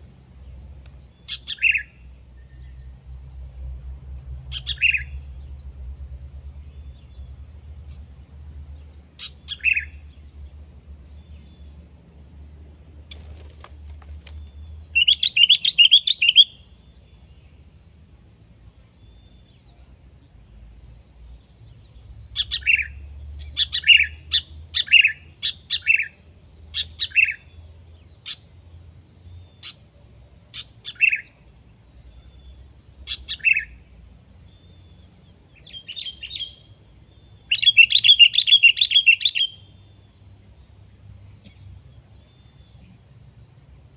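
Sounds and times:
bird calls: 0.4 - 2.9, 4.5 - 5.7, 8.8 - 10.4, 13.0 - 17.6, 21.6 - 26.2, 30.5 - 31.4, 32.1 - 33.8, 34.5 - 40.2
bird chattering: 15.0 - 16.6.

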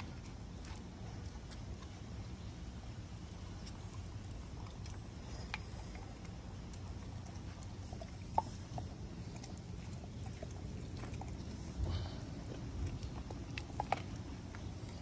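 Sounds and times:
dog licking and chewing meat: 0.0 - 15.0.

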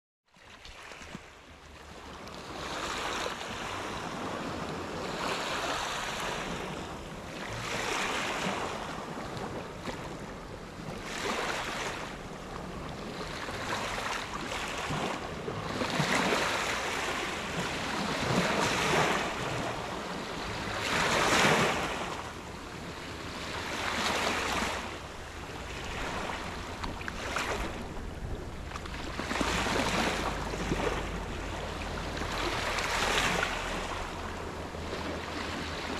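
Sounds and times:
waves washing over pebbles: 2.0 - 35.9.

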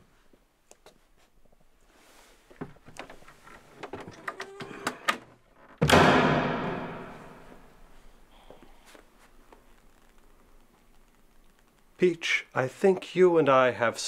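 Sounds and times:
wardrobe door slamming: 5.8 - 7.6.

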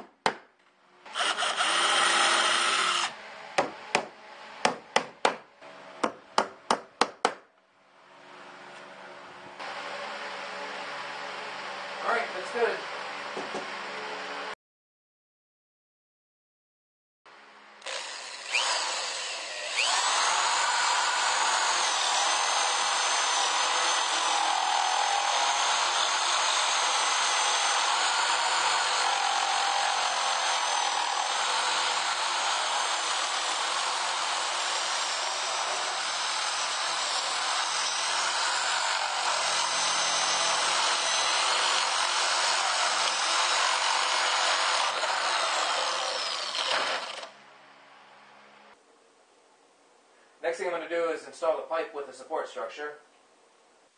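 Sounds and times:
power drill boring wood: 1.1 - 3.2, 17.8 - 47.4.

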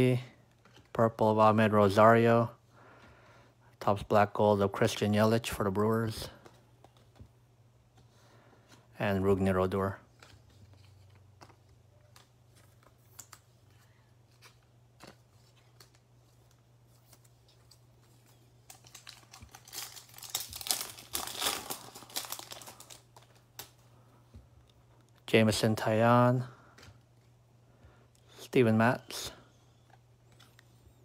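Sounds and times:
wrapper crinkling and tearing: 18.2 - 23.8.

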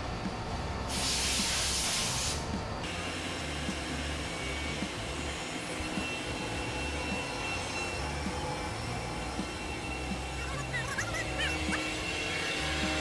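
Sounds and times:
machinery hum: 0.0 - 13.0
compressed air hissing: 0.9 - 2.5.

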